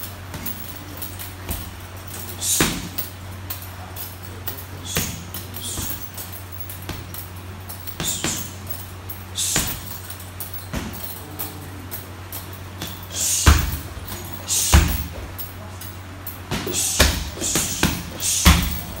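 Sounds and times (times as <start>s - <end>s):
punches and kicks on heavy bag: 1.4s - 3.0s, 4.8s - 6.2s, 7.9s - 8.6s, 9.4s - 10.0s, 10.6s - 11.2s, 12.8s - 15.4s, 16.5s - 19.0s.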